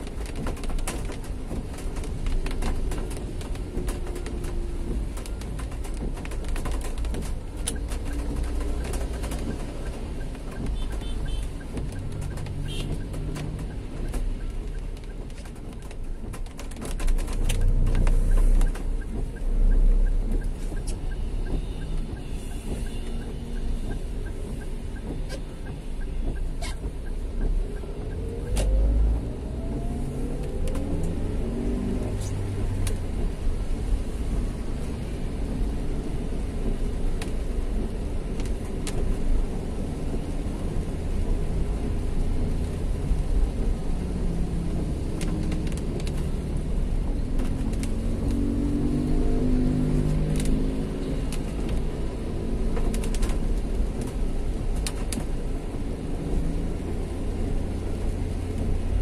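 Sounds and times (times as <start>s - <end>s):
cars and motorbikes passing: 40.7s - 59.0s.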